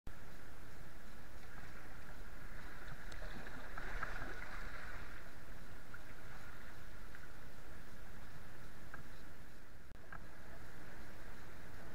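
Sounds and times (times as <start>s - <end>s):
faint ticks: 0.1s - 4.1s, 5.6s - 10.4s.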